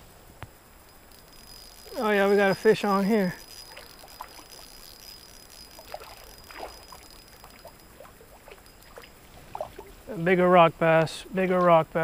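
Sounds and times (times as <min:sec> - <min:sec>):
small water splashes and trickles: 0:03.4 - 0:04.9, 0:05.8 - 0:10.0.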